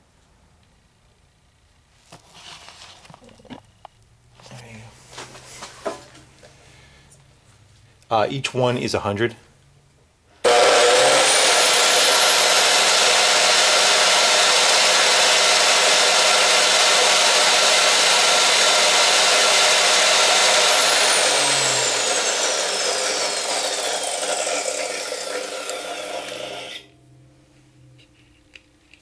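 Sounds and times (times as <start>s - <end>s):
chop saw motor whine: 10.4s - 27.0s.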